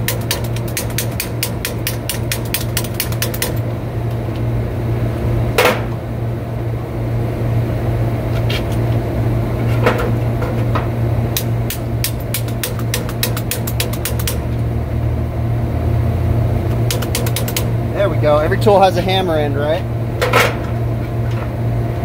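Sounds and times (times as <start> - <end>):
fast metal-on-metal tapping: 0.0 - 3.6, 11.4 - 14.5, 16.9 - 17.7
low machinery hum: 0.0 - 22.0.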